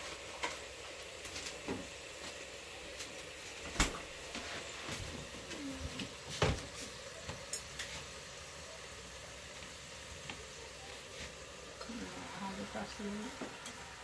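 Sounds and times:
shoots sizzling in a pan: 0.0s - 14.0s
chopsticks clicking in a pan: 7.5s - 7.9s.

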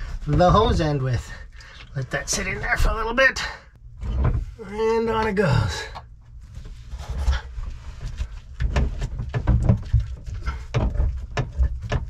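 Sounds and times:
plastic hose knocking and rubbing: 0.0s - 1.0s, 6.6s - 12.0s.

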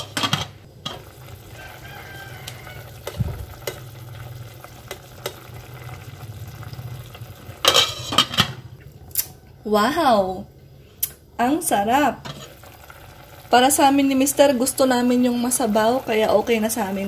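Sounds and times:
sauce simmering in a pot: 0.7s - 8.0s, 12.3s - 17.0s
metal spoon scraping a pot: 7.6s - 8.5s, 12.2s - 12.6s.

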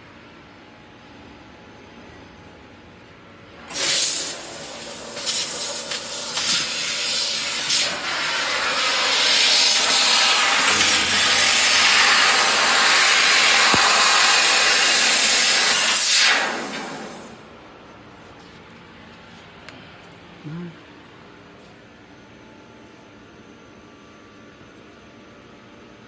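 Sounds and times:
laser cutter gas hissing: 3.7s - 17.4s
low machine hum: 9.8s - 14.0s, 17.3s - 26.0s.

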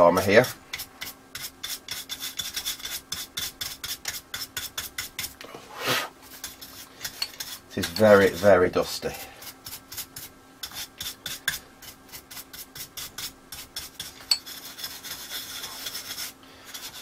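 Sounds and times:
brush scrubbing dust: 0.0s - 17.0s.

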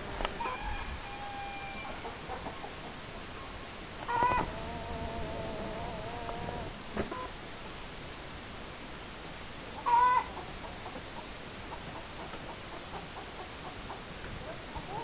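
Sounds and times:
bird calling: 3.4s - 7.4s.

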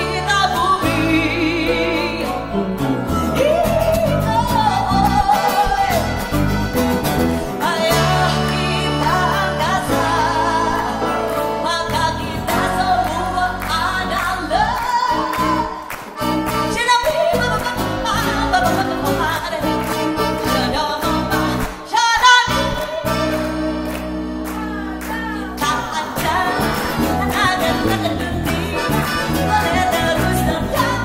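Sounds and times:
woman singing: 0.0s - 6.4s, 7.5s - 31.0s
accordion: 0.0s - 21.8s, 22.4s - 31.0s
electric bass: 0.0s - 21.8s, 22.4s - 31.0s
grand piano: 0.0s - 21.8s
acoustic guitar: 0.0s - 31.0s.

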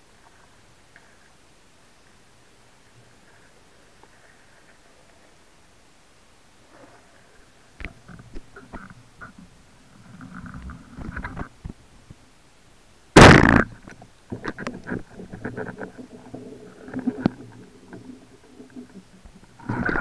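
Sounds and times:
faint underwater clicks: 7.7s - 12.2s, 13.6s - 20.0s
underwater thump: 13.2s - 18.1s.

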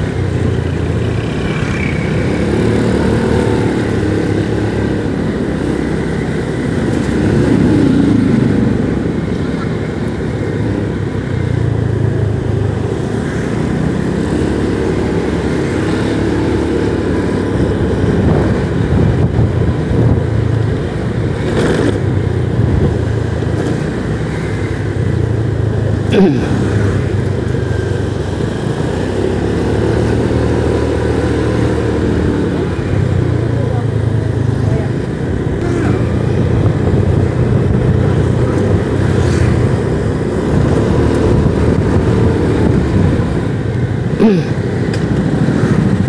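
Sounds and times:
motorcycle engine running: 0.0s - 46.0s
road noise: 0.0s - 46.0s.

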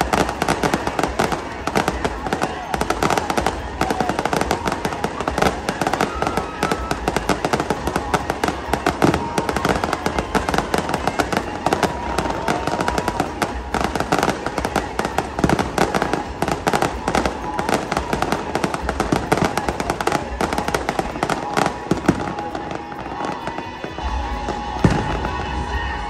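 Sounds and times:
fireworks crackling and popping: 0.0s - 26.0s.

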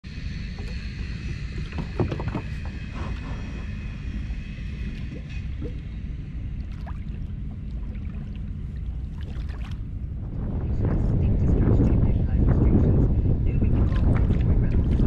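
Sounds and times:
wind rumbling on microphone: 0.1s - 15.0s
water lapping against hull: 0.4s - 10.4s, 13.5s - 15.0s.

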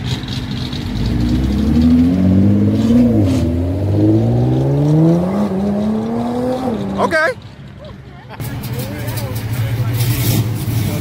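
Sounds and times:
car engine accelerating hard: 0.0s - 7.3s.

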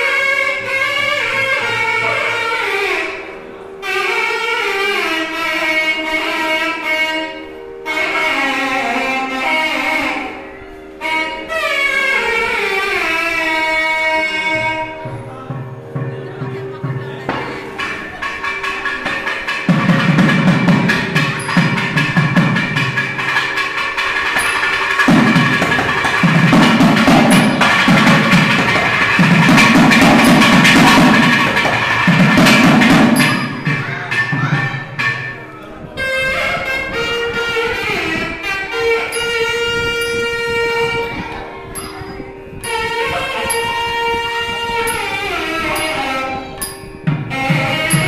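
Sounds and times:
nadaswaram reedy melody: 0.0s - 48.0s
double reed horn long notes: 0.1s - 15.2s
thavil drumming: 14.2s - 48.0s.

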